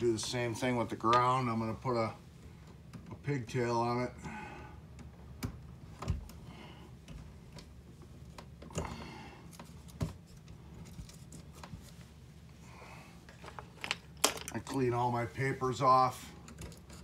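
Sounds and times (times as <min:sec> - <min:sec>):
hands rustling wires: 0:05.0 - 0:12.6.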